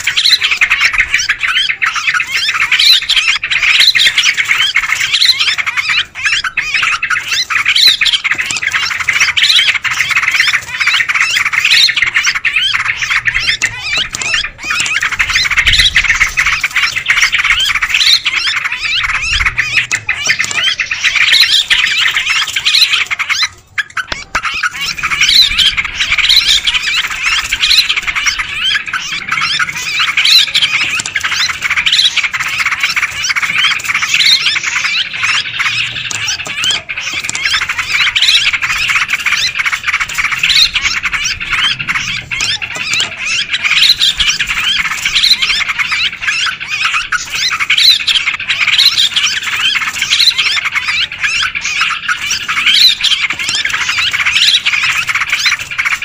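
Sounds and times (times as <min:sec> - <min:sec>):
flock of birds chattering: 0:00.0 - 0:56.0.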